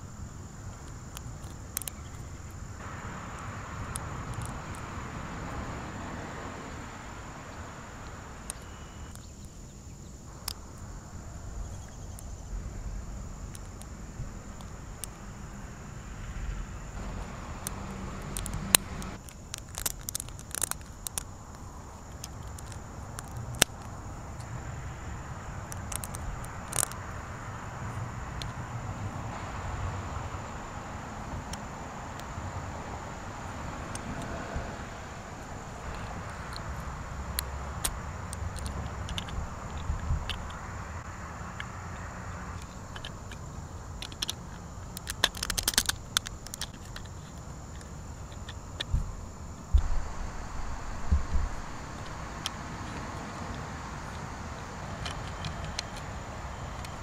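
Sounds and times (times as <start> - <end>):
steady background hiss: 0.0 - 57.0
plastic bricks clicking together: 17.6 - 23.9, 25.7 - 27.0, 37.8 - 40.6, 42.6 - 43.4, 44.0 - 48.9.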